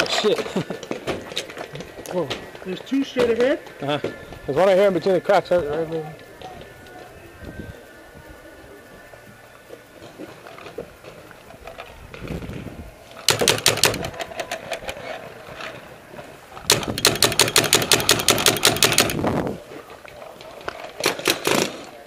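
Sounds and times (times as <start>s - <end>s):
paintball marker firing bursts: 13.2s - 14.3s, 16.7s - 19.2s, 21.0s - 21.9s.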